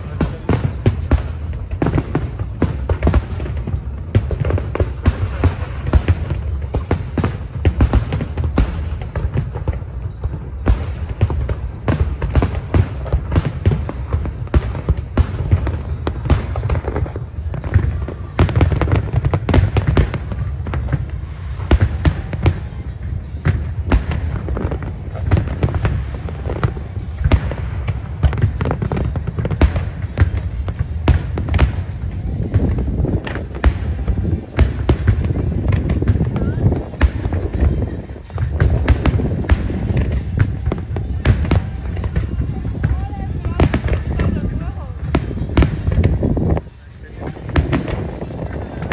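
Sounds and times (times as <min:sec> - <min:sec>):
continuous low rumble: 0:00.0 - 0:48.9.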